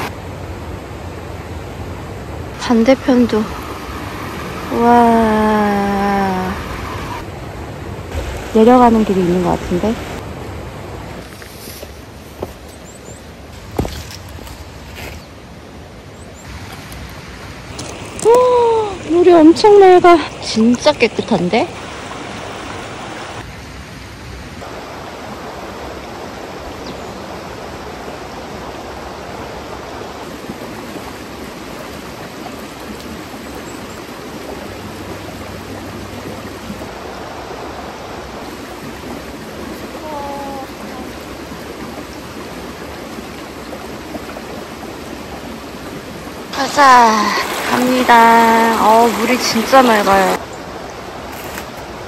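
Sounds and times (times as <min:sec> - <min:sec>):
water running: 0:16.5 - 0:23.4, 0:30.2 - 0:50.4.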